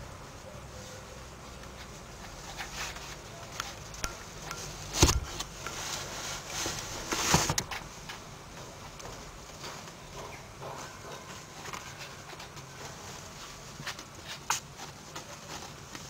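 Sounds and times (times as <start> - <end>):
kittens scuffling on fabric: 0.0 - 16.0
sharp thumps: 4.0 - 5.9.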